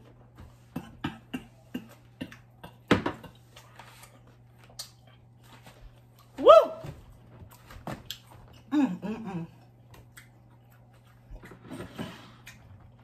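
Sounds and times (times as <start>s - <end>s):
chewing clicks and smacks: 4.6s - 5.3s, 9.8s - 11.5s.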